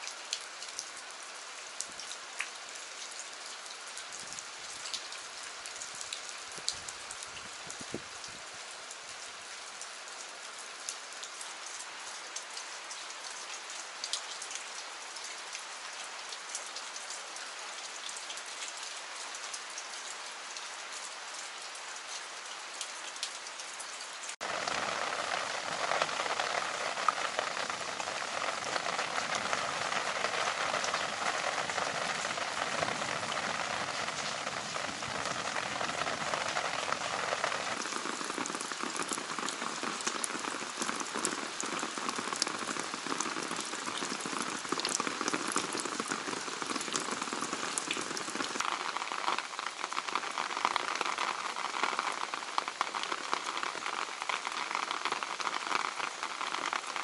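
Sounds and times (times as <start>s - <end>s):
heavy rain splashing: 24.3s - 57.0s.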